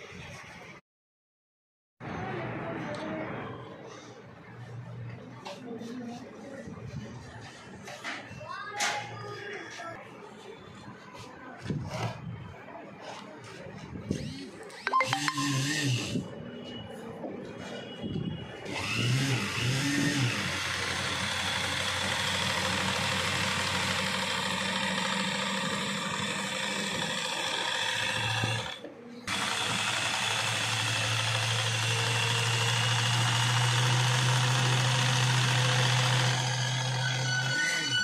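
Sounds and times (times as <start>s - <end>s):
sewing machine stitching: 18.7s - 37.8s.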